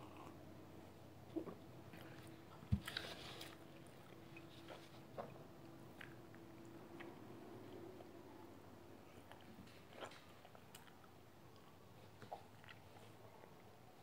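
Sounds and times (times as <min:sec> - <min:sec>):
person chewing bread: 0:01.4 - 0:14.0.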